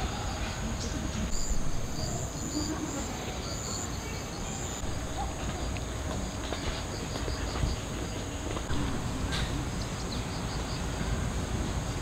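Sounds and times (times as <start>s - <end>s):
insects chirping: 0.1s - 12.0s
faster pulsing insect chirp: 1.3s - 8.2s.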